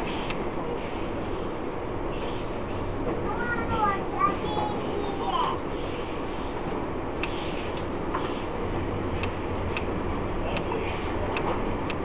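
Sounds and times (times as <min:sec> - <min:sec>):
train rumble with low hum: 0:00.0 - 0:12.0
sharp ticks: 0:09.2 - 0:09.9.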